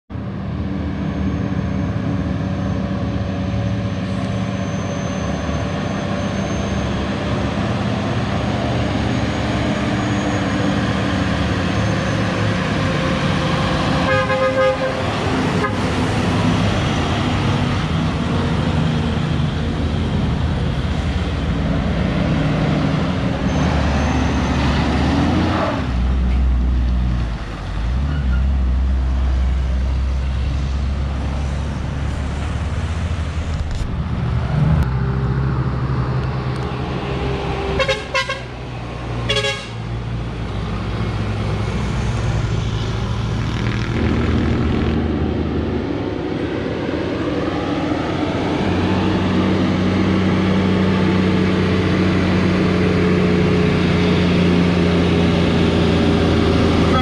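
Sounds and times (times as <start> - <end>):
heavy truck engine drone: 0.1 - 57.0
trucks and cars passing: 0.1 - 57.0
vehicle horn pulses: 14.0 - 15.9, 37.8 - 38.5, 39.3 - 39.8.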